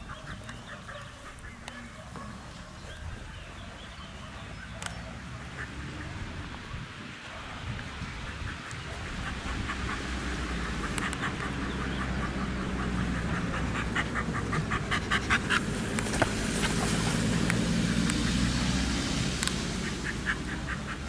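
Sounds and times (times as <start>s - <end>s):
dog panting: 8.3s - 18.6s, 19.8s - 21.0s.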